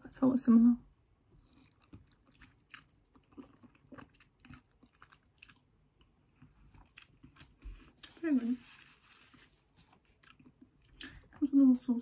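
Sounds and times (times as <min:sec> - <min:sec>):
wet chewing: 0:01.2 - 0:07.6.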